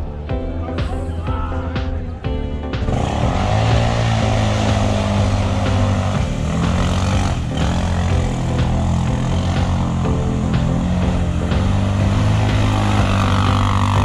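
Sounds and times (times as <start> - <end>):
quad engine revving: 2.8 - 14.0.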